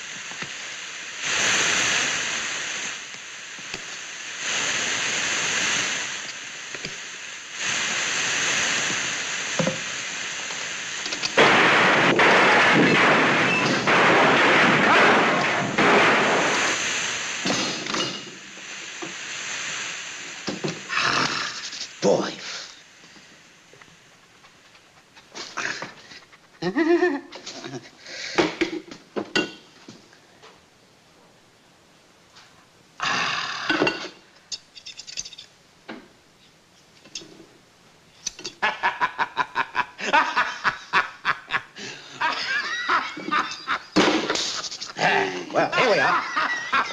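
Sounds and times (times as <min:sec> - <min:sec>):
steam press hissing: 0:00.0 - 0:23.4
man snickering: 0:25.4 - 0:28.0, 0:38.6 - 0:46.9.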